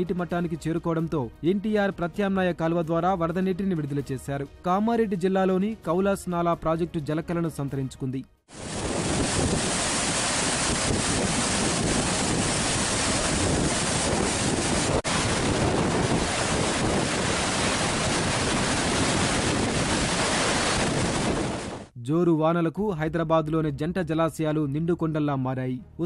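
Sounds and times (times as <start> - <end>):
water rushing through spillway: 8.5 - 21.9.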